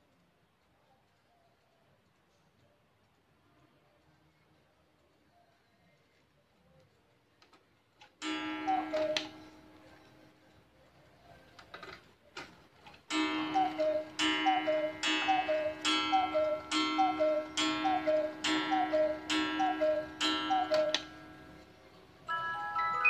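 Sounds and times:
faint clock clicks: 6.8 - 10.6, 11.4 - 21.7
clock ringing strike: 8.2 - 10.0, 13.1 - 23.0
cuckoo clock calls: 8.2 - 10.2, 13.1 - 23.0.

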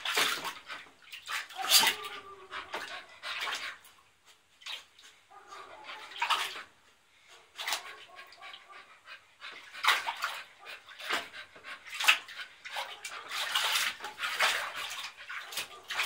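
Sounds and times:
dog splashing in water: 0.0 - 4.0, 5.8 - 6.7, 7.5 - 8.6, 9.4 - 16.0.

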